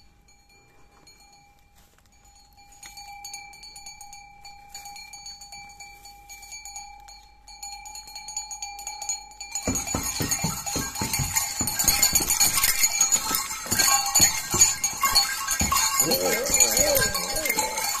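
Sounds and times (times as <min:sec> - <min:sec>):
bells clanking: 0:00.0 - 0:18.0
bells ringing: 0:00.0 - 0:18.0
wavering growl: 0:15.9 - 0:18.0.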